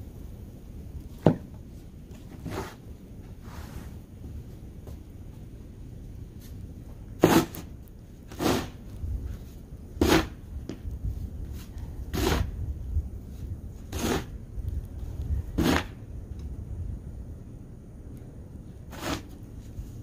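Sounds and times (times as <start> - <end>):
snow shovel scraping snow: 2.4 - 2.8, 7.2 - 7.7, 8.3 - 8.8, 10.0 - 10.4, 12.1 - 12.5, 13.9 - 14.3, 15.6 - 15.9, 18.9 - 19.4.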